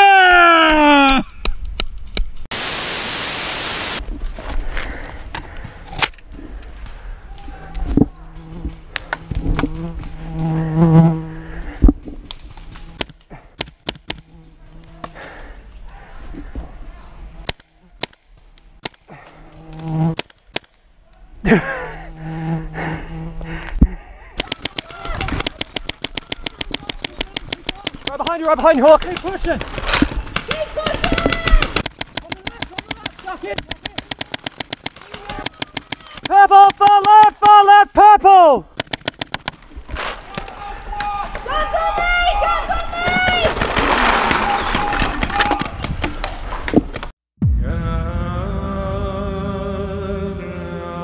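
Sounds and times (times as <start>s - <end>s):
white-noise static burst: 2.5s - 4.0s
paintball markers firing: 24.4s - 37.3s, 38.8s - 39.6s.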